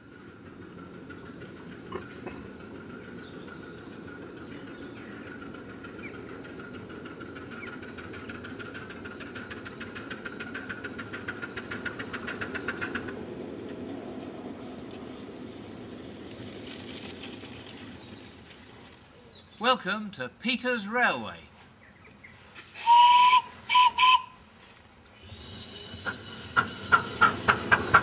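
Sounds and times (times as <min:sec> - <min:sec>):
steam locomotive chuffing: 0:00.0 - 0:13.7, 0:22.6 - 0:24.4, 0:25.1 - 0:28.0.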